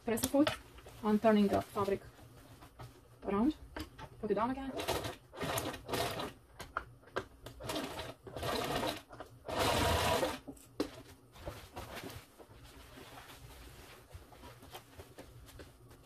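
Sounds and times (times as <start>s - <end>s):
sewing machine stitching: 4.6s - 6.4s, 7.6s - 10.5s.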